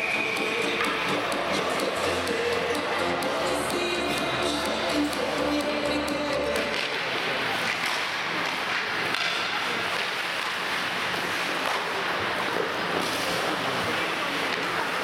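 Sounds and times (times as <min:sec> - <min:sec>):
music from rink speakers: 0:00.0 - 0:13.3
steady hall noise: 0:00.0 - 0:15.0
sticks hitting puck: 0:06.6 - 0:12.0
skates scraping on ice: 0:06.8 - 0:15.0.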